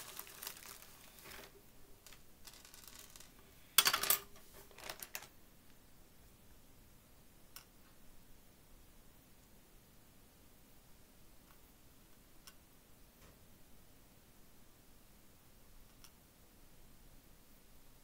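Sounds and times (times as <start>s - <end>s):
faint bead clicks: 0.0s - 3.5s
plastic beads clattering on table: 0.0s - 5.3s.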